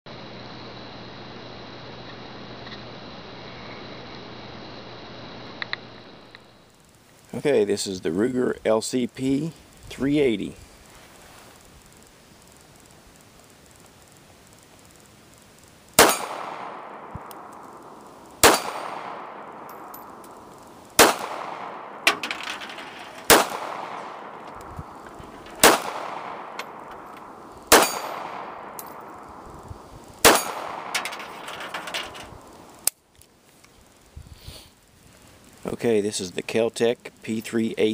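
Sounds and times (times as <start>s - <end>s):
pistol shots with echo: 16.0s - 22.2s, 23.2s - 29.4s, 30.2s - 31.4s.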